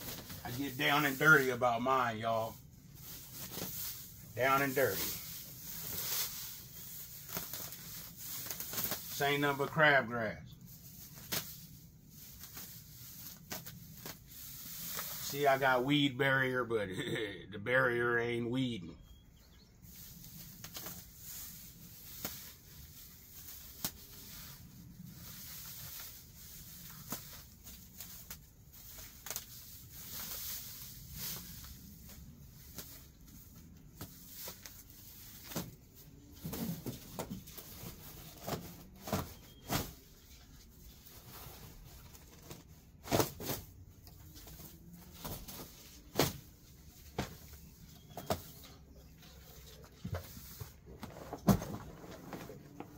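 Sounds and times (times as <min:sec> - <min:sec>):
dry grass rustling and tearing: 0:00.1 - 0:09.2.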